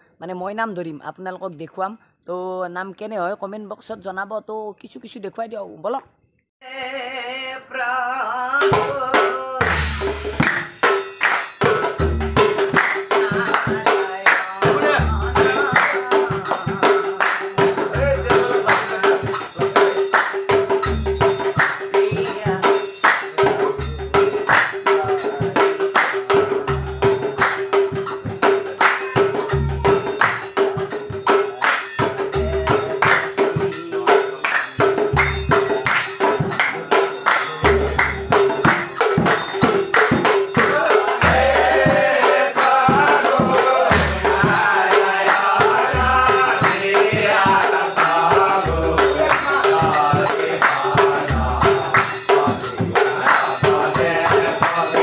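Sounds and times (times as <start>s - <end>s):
rattling hand percussion: 8.6s - 55.0s
hand claps: 9.6s - 22.0s, 23.0s - 42.0s, 42.6s - 44.2s, 45.2s - 45.8s, 49.2s - 55.0s
men singing in group: 12.6s - 27.6s, 31.3s - 55.0s.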